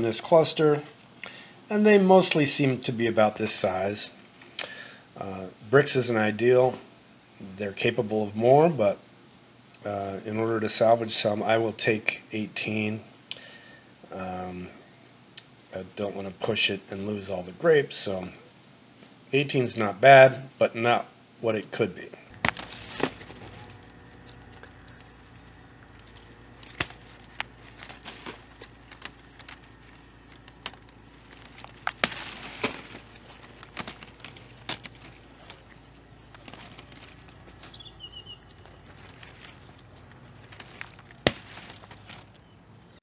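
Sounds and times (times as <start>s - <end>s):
leaves rustling and crackling: 22.3s - 42.6s.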